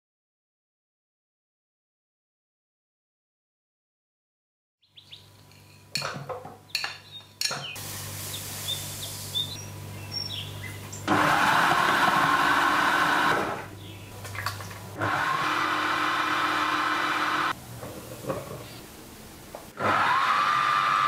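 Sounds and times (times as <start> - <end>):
food processor motor running: 11.1 - 13.7, 15.0 - 17.5, 19.8 - 21.0.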